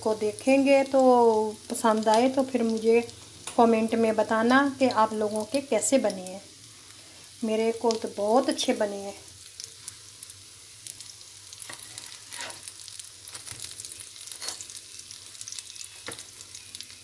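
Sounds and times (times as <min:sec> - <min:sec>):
food sizzling in hot oil: 0:00.0 - 0:17.0
oil crackles: 0:07.7 - 0:17.0
spatula turning food in pan: 0:09.4 - 0:17.0.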